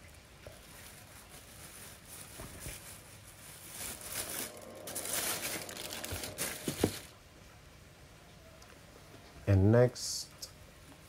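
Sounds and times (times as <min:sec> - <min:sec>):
plastic packaging crinkling: 0:00.5 - 0:07.2.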